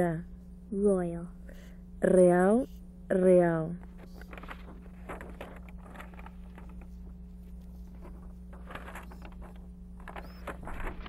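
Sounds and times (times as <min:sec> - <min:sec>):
low hum and hiss: 0:00.0 - 0:11.0
faint clicks and rustles: 0:03.8 - 0:11.0.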